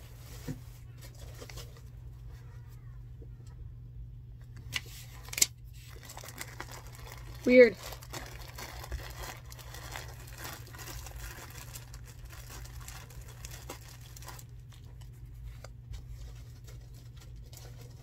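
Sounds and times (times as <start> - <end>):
plastic bag crinkling: 5.1 - 18.0.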